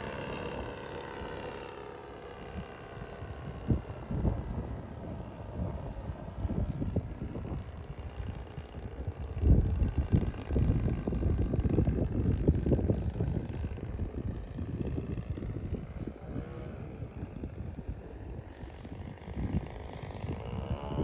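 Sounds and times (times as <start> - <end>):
model airplane propeller drone: 0.0 - 21.0
wind buffeting microphone: 0.0 - 21.0.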